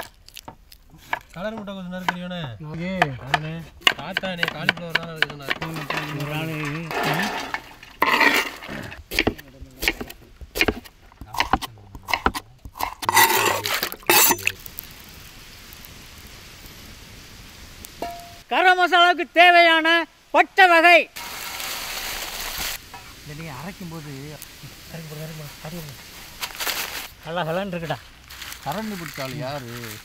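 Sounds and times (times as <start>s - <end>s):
person speaking: 1.4s - 7.5s, 8.6s - 14.7s
knife cutting on cutting board: 9.1s - 14.5s.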